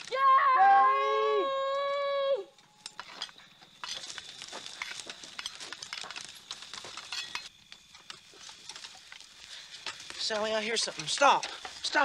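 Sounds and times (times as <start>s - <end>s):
sharp clicks and crackles: 2.6s - 12.0s.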